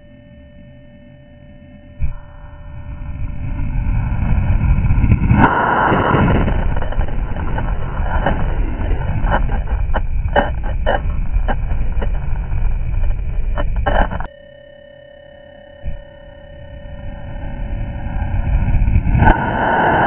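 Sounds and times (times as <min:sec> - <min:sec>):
slowed rocket motor roar: 0:02.1 - 0:14.0, 0:16.6 - 0:20.0
sharp cracks: 0:04.2 - 0:14.3.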